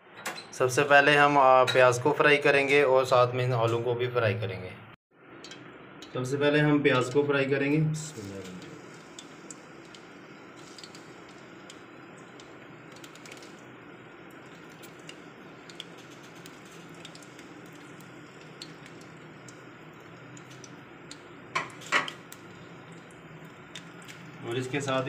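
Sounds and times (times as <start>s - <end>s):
onions sizzling in oil: 8.1s - 25.0s
small pops and crackles: 8.3s - 25.0s.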